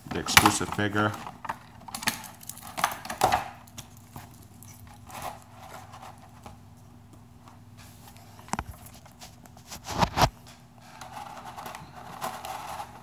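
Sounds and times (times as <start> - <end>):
handling noises: 0.0 - 13.0
plastic packaging crinkling: 1.0 - 6.4.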